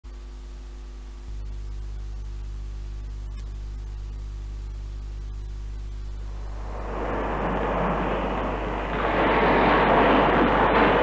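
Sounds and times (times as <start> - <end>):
mains hum: 0.0 - 11.0
tape hiss: 0.0 - 11.0.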